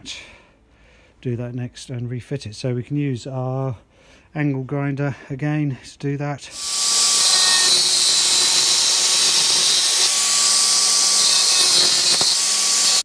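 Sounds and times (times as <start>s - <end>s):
angle grinder cutting plastic: 6.5s - 13.0s.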